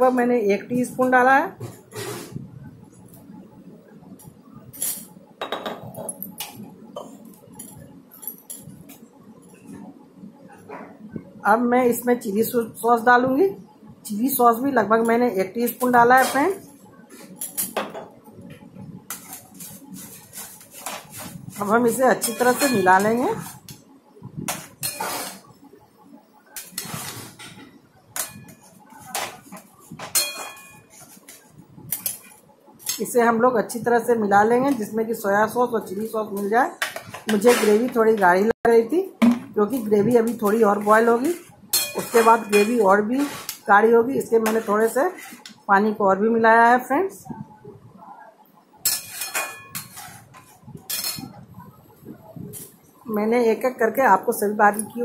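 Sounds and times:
metal spatula scraping a wok: 24.8s - 25.5s, 40.8s - 43.7s, 44.4s - 45.5s, 48.9s - 51.3s.

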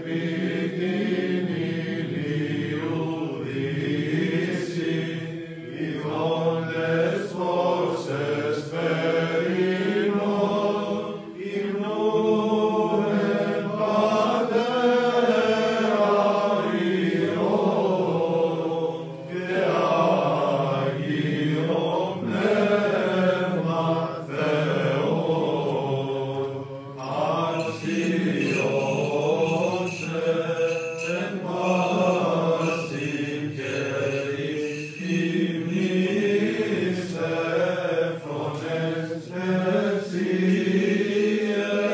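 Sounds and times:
man chanting hymn: 12.9s - 41.9s
low vocal drone: 21.8s - 41.9s.

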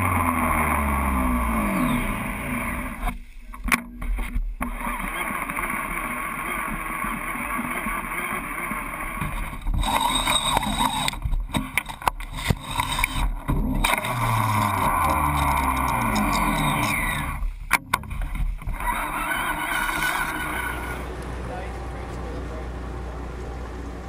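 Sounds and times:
boat engine rumble: 0.0s - 24.0s
water noise: 1.4s - 23.9s.

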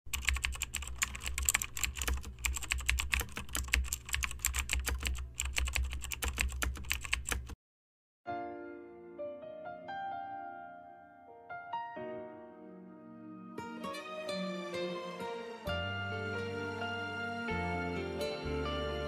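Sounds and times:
rapid keyboard typing: 0.1s - 7.6s
soft piano music: 8.3s - 19.0s.

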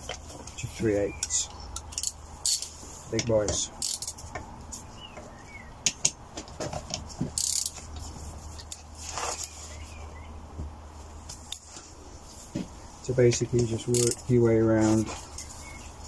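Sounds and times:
ratchet clicking: 1.8s - 2.7s, 3.8s - 4.2s, 7.4s - 7.8s, 13.9s - 14.2s.

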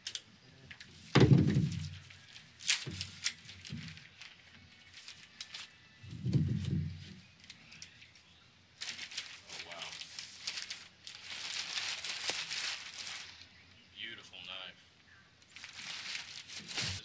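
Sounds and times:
clicks and paper rustles: 0.0s - 13.5s, 15.4s - 17.0s
heavy thump: 1.1s - 2.0s.

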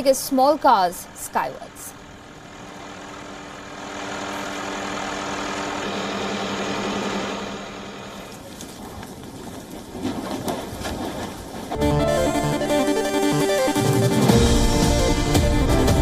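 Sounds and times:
helicopter engine hum: 0.0s - 9.4s, 11.7s - 16.0s
rushing rotor wash: 1.0s - 8.9s.

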